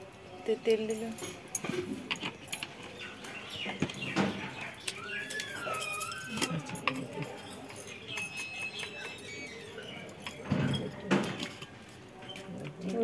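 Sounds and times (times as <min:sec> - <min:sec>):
bird whistling call: 0:04.8 - 0:06.6.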